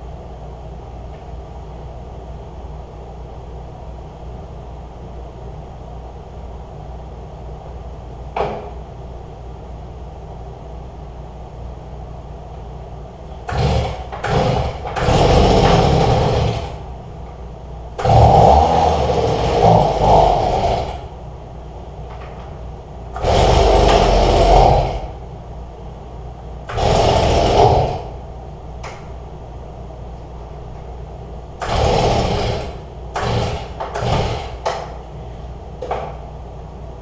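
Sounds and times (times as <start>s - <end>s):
low steady hum: 0.0s - 37.0s
electric leaf blower bursts: 13.5s - 16.8s, 18.0s - 21.0s, 23.2s - 25.1s, 26.7s - 28.1s, 31.6s - 34.6s.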